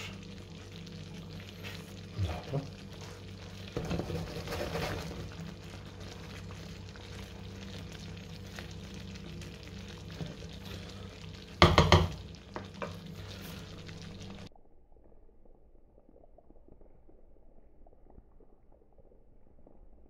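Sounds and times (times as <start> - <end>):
soft sizzle: 0.0 - 20.0
steady low hum: 0.0 - 20.0
wooden spoon stirring sauce: 1.4 - 14.4
loud knocks: 11.6 - 12.2.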